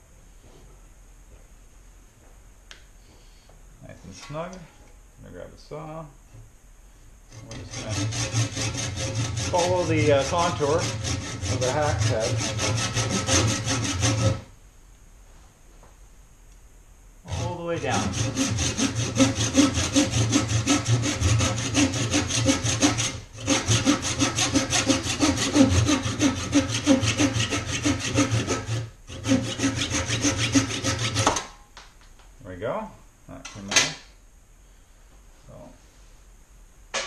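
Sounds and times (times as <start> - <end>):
handsaw cutting wood: 7.3 - 14.5, 17.3 - 31.4.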